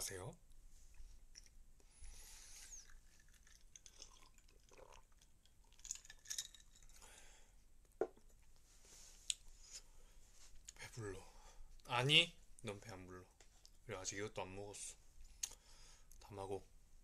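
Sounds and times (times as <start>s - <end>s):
sip from a glass: 2.4s - 5.1s
chewing: 2.8s - 7.0s.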